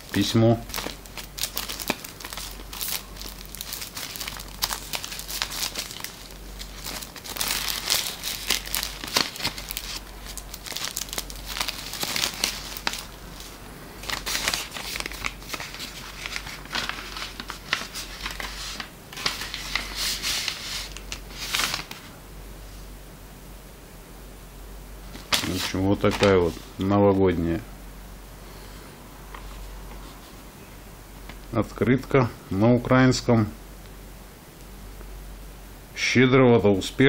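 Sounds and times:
paper and plastic crinkling: 0:00.0 - 0:22.1, 0:25.1 - 0:26.8.

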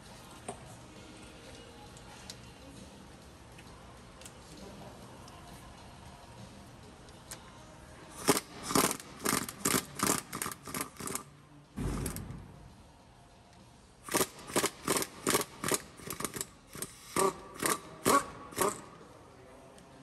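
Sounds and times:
pneumatic wrench bursts: 0:08.2 - 0:11.3, 0:11.9 - 0:12.2, 0:14.0 - 0:19.0.

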